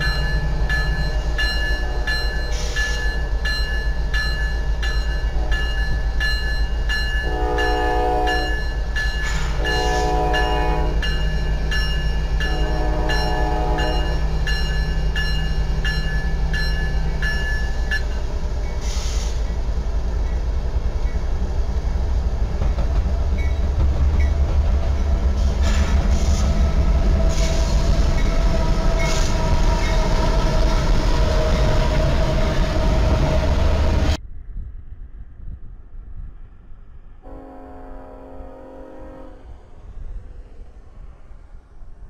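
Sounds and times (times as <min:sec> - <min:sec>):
locomotive bell ringing: 0:00.0 - 0:18.8
train wheels rolling on rails: 0:00.0 - 0:34.2
diesel locomotive engines rumbling: 0:00.0 - 0:42.0.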